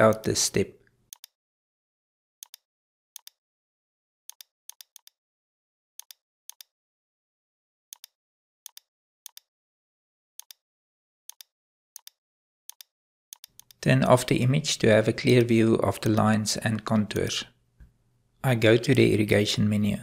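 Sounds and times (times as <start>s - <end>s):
computer mouse clicks: 1.1s - 1.4s, 2.4s - 2.6s, 3.2s - 3.4s, 4.3s - 5.2s, 6.0s - 6.7s, 7.9s - 9.5s, 10.4s - 10.6s, 11.3s - 13.8s.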